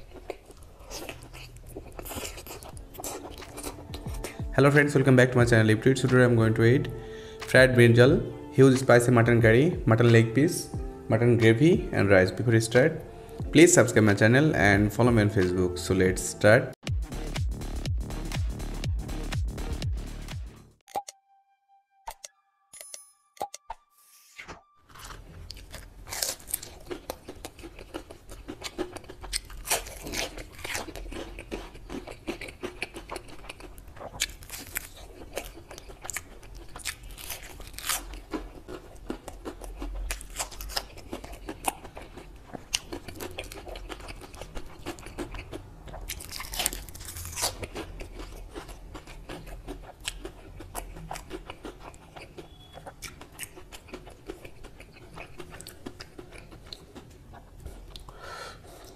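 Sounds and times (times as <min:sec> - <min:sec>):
man chewing food: 0:00.0 - 0:04.6, 0:24.9 - 0:58.9.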